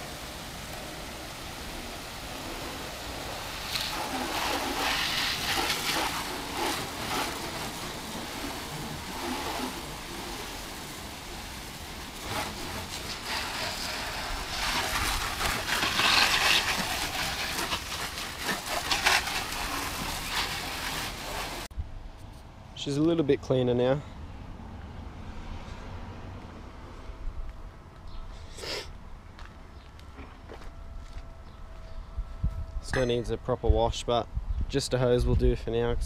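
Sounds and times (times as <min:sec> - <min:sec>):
hose water spraying on car: 0:00.0 - 0:21.7.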